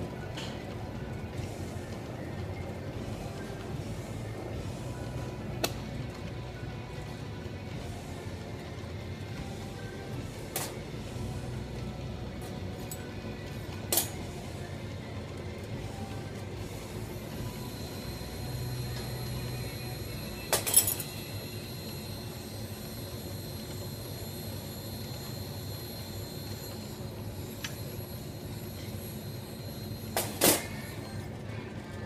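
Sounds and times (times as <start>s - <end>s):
glass lathe humming with whine: 14.4s - 30.2s
torch flame hissing: 21.2s - 30.9s.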